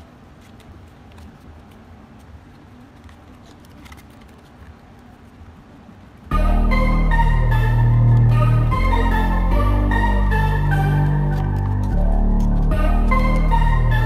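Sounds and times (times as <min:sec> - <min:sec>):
low background rumble: 0:00.0 - 0:14.0
cardboard rustling and tapping: 0:00.3 - 0:05.1
background music: 0:06.3 - 0:14.0.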